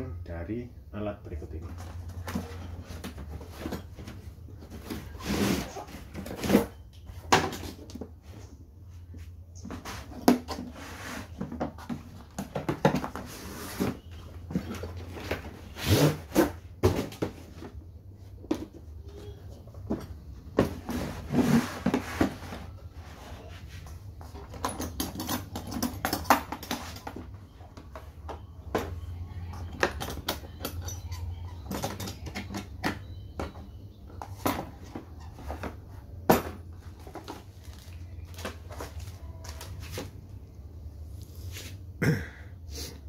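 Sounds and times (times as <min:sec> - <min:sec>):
plastic cases knocking and scraping: 0:09.6 - 0:17.8.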